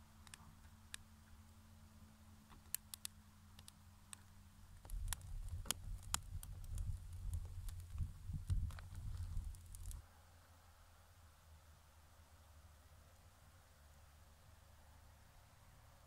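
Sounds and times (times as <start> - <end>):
low rumble of burning wood: 0.0 - 16.0
campfire crackling and popping: 2.4 - 10.0.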